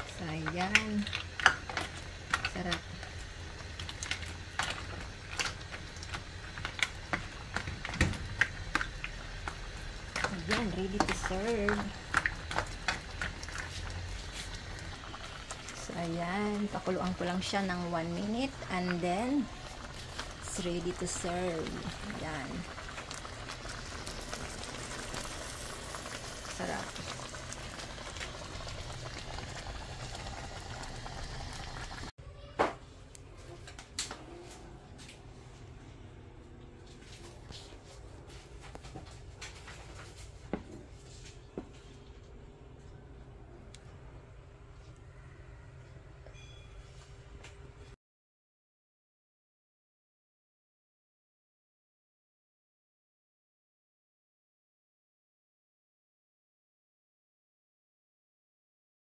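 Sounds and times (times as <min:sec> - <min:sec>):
pot boiling and bubbling: 0:00.0 - 0:32.1, 0:33.4 - 0:46.6.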